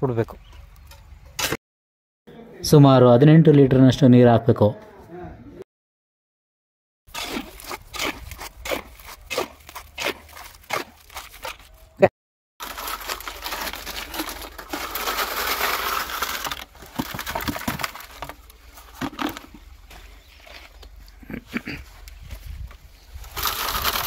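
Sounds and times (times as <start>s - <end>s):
hoe scraping wet concrete: 7.1s - 11.8s.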